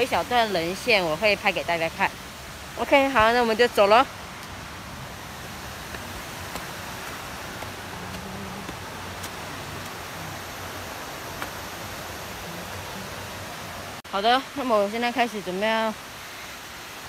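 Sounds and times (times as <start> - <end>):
rustling of leaves while walking: 0.0 - 14.0
faint footsteps: 5.8 - 10.1.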